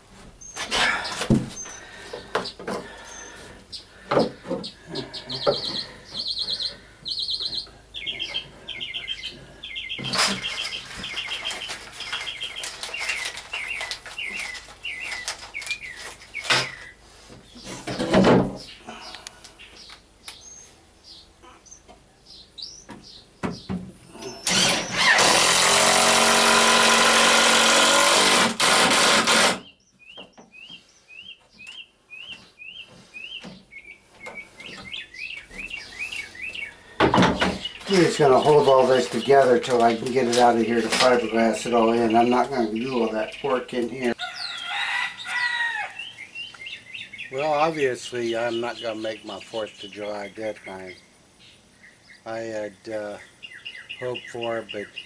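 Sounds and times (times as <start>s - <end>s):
small birds chirping: 0.4s - 25.3s, 29.6s - 55.0s
cordless drill driving screw: 24.4s - 29.6s.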